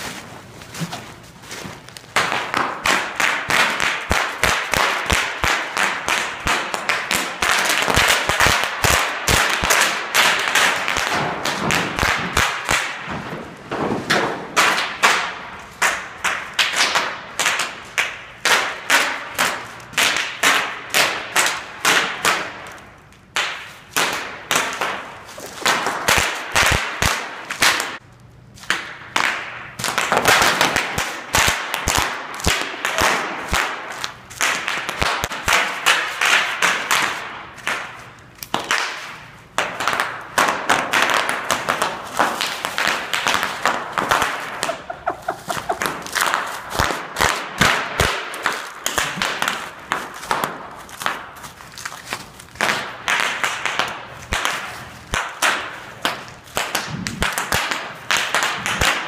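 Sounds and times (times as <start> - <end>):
bubble wrap popping: 0.0 - 13.0, 39.7 - 59.0.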